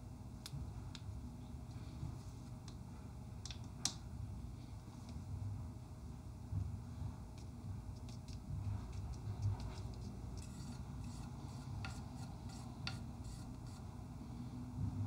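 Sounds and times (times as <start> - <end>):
brush tapping palette: 7.3 - 13.8
paintbrush scratching on palette: 7.9 - 13.9.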